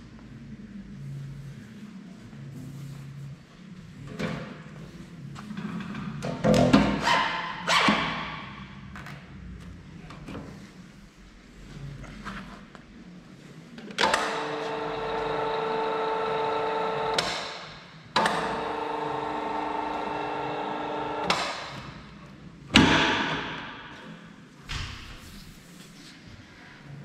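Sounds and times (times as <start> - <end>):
pipe expander machine whine: 18.2 - 21.4.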